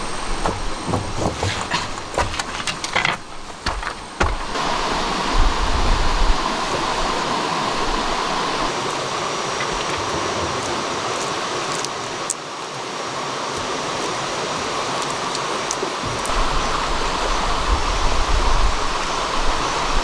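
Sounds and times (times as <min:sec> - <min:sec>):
dull thuds: 0:00.0 - 0:04.6
stream flowing: 0:00.0 - 0:20.0
rocks knocking together: 0:00.3 - 0:04.6.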